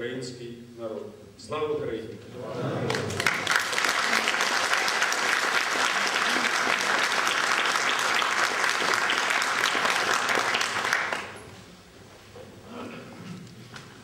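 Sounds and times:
audience applauding: 2.7s - 11.4s.

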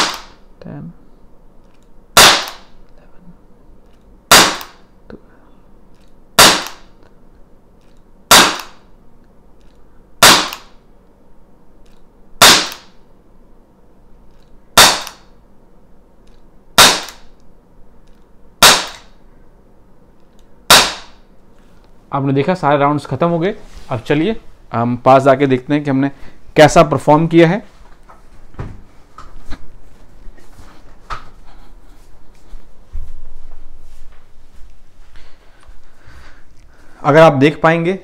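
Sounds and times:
air pistol shots: 0.0s - 0.4s, 2.1s - 2.8s, 4.3s - 4.9s, 6.4s - 7.0s, 8.3s - 8.9s, 10.2s - 10.8s, 12.4s - 13.0s, 14.8s - 15.3s, 16.8s - 17.4s, 18.6s - 19.2s, 20.7s - 21.2s
pistol slide snapping: 7.8s - 8.8s, 9.6s - 10.8s, 14.8s - 15.3s, 16.3s - 17.3s.

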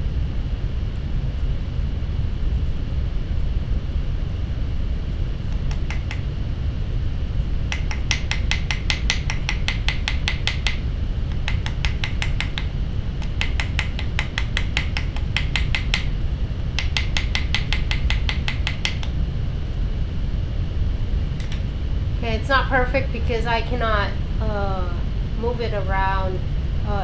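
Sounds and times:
steady low hum: 0.0s - 27.0s
hammer tapping rivet on steel block: 7.7s - 16.1s, 16.8s - 19.1s.

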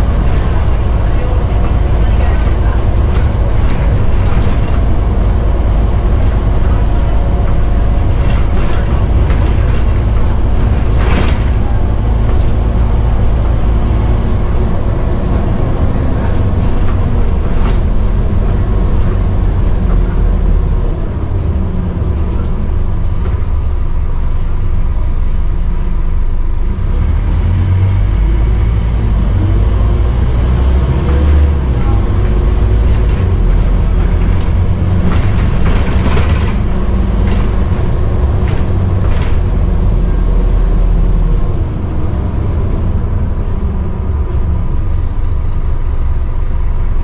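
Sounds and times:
interior rattles: 0.0s - 22.4s, 31.6s - 40.6s
bus diesel engine rumble: 0.0s - 47.0s.

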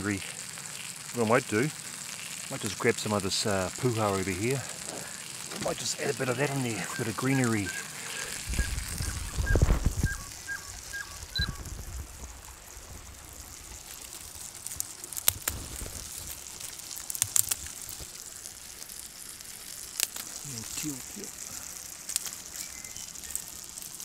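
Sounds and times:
creek trickling: 0.0s - 24.0s
plant stems snapping: 15.1s - 18.1s, 19.8s - 20.5s, 22.1s - 22.6s.

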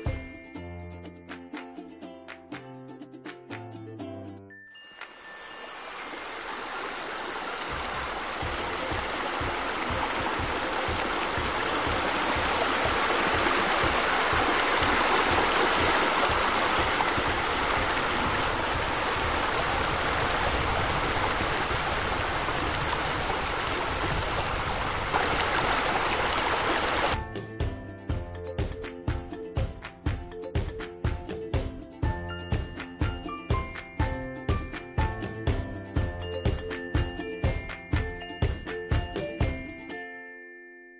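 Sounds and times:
splashing falling water: 5.0s - 27.2s.

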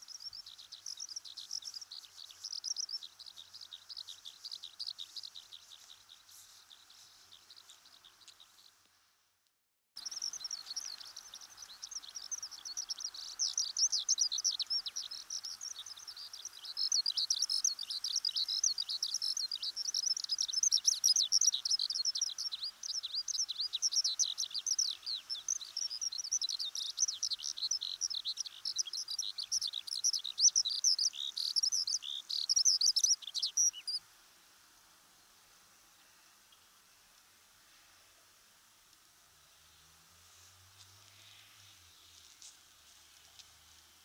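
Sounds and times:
skylark singing: 0.0s - 8.7s, 10.0s - 34.0s.

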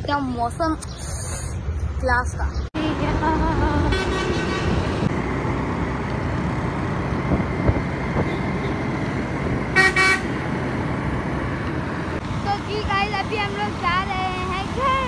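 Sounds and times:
vehicle horn toots: 9.7s - 10.3s.

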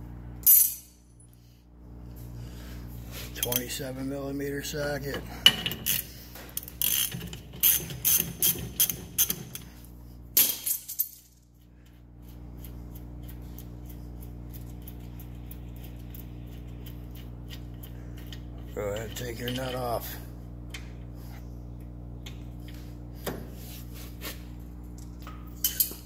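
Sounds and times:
steady low hum: 0.0s - 26.0s
ratchet wrench clicking: 6.6s - 9.6s.

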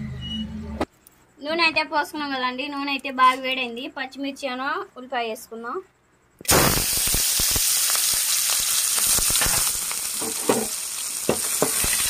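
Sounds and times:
onions sizzling in hot oil: 6.5s - 12.0s
spoon knocking metal pan: 10.2s - 12.0s.

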